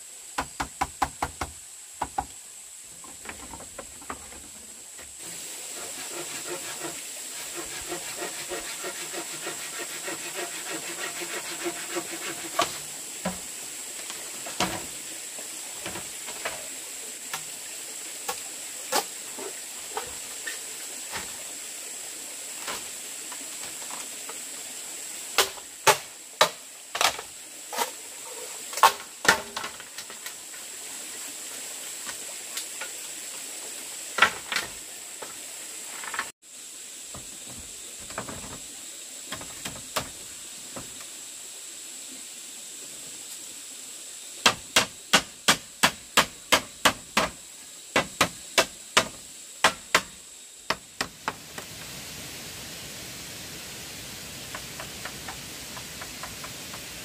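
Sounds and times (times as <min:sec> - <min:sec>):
steady high hiss: 0:00.0 - 0:57.0
hand tool knocking on bamboo: 0:00.4 - 0:02.3.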